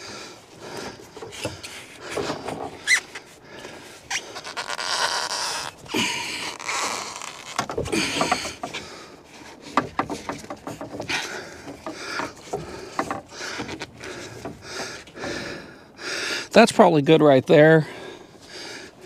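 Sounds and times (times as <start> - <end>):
pipe rubbing and scraping on wood: 1.0 - 15.2
small knocks and clicks: 9.6 - 15.2.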